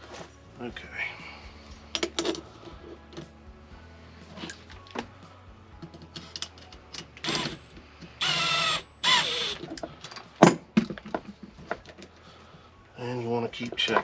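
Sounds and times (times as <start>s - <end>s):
cordless drill motor whine: 7.2s - 10.0s.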